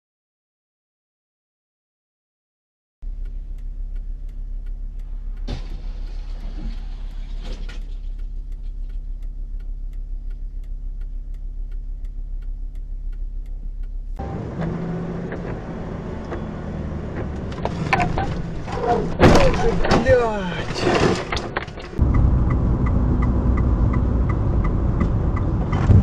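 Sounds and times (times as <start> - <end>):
regular sharp ticking: 3.0 - 7.2, 7.8 - 19.1, 21.9 - 26.0
car driving drone: 3.0 - 26.0
rough engine and road noise: 3.0 - 26.0.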